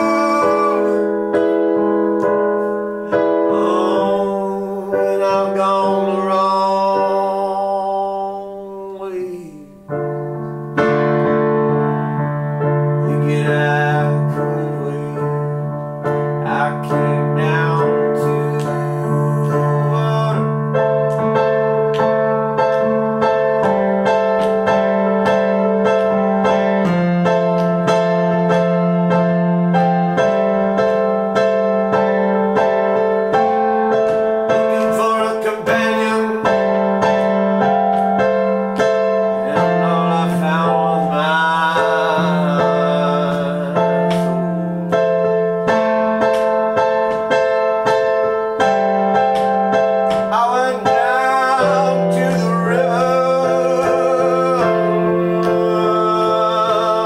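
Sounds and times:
digital piano chords: 0.0s - 57.0s.

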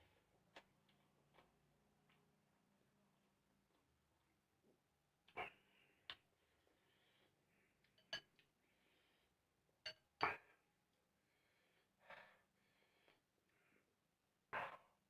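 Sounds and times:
chopsticks clinking on ceramic bowl: 8.0s - 8.4s.

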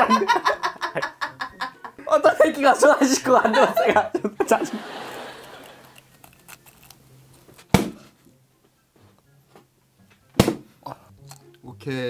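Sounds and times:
faint chewing crackles: 5.2s - 7.7s
hard candy crunching: 5.2s - 7.7s.

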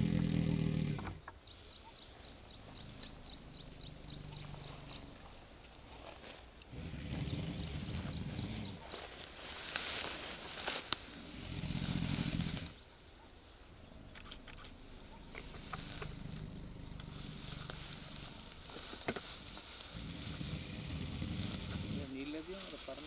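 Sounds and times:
low rumble: 2.5s - 5.5s, 13.7s - 18.8s.

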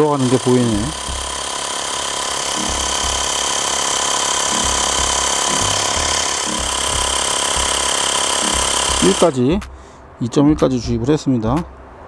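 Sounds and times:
electric air pump whining: 0.0s - 9.4s.

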